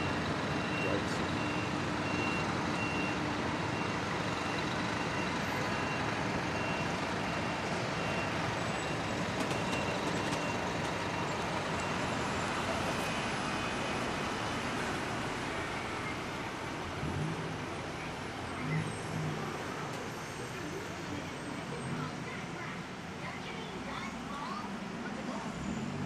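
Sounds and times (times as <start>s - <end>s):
reversing alarm beeps: 0.0s - 12.5s
city street traffic: 0.0s - 26.0s.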